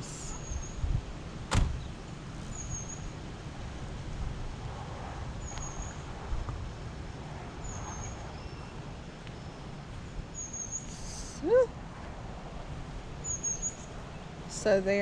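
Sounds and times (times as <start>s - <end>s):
low steady rumble: 0.0s - 15.0s
small bird calling: 10.4s - 11.7s.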